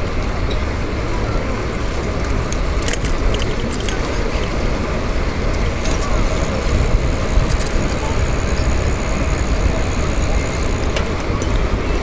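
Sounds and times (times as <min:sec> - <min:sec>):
bike chain lock rattling clicks: 0:02.8 - 0:04.0, 0:05.8 - 0:11.0
wind buffeting microphone: 0:04.0 - 0:11.8.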